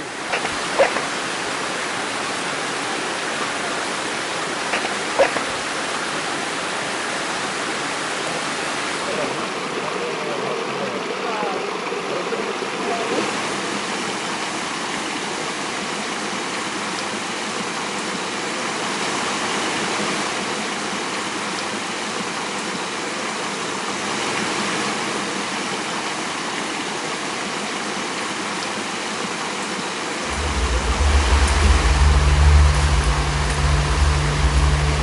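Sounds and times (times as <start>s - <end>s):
waterfall rushing: 0.0s - 35.0s
deep low rumble: 30.3s - 35.0s.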